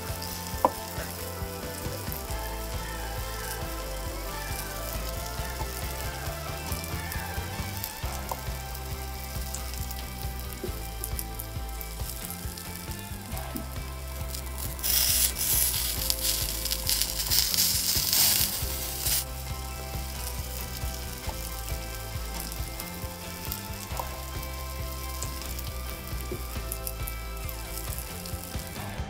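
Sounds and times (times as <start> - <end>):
chicken sizzling in a wok: 14.3 - 28.8.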